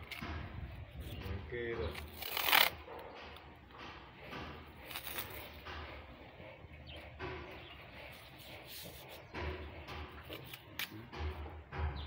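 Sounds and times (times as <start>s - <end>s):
masking tape peeling: 1.9s - 3.4s, 4.7s - 5.6s.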